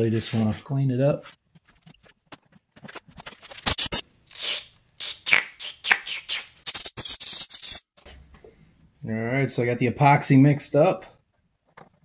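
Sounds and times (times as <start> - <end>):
rapid scratching: 6.1 - 7.9.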